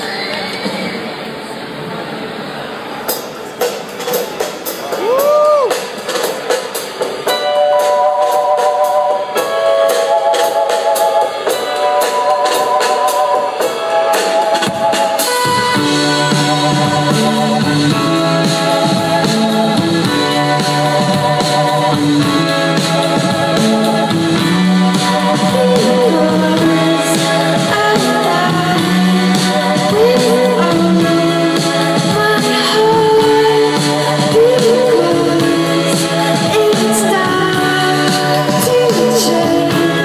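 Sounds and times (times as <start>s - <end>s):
live band playing: 3.0s - 40.0s
woman singing: 15.9s - 40.0s.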